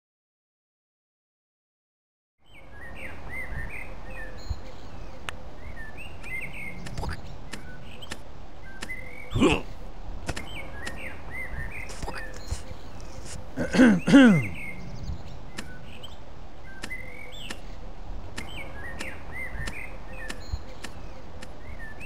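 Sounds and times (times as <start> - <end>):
birds chirping: 2.4 - 22.0
outdoor background noise: 2.4 - 22.0
falling vocal grunts: 9.3 - 9.7, 13.5 - 14.8.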